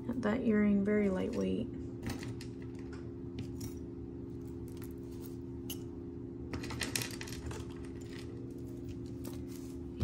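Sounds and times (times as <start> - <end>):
jewelry clicking and clinking: 2.2 - 5.9.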